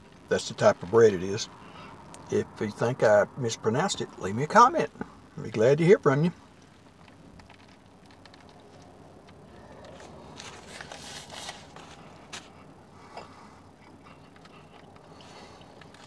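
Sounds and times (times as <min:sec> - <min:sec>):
car cabin hum: 0:00.0 - 0:16.0
foil wrapper crinkling: 0:06.9 - 0:12.7.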